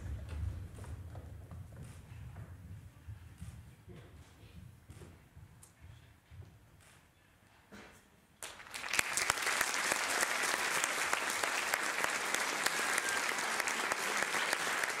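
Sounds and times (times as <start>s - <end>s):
audience applause: 8.4s - 15.0s.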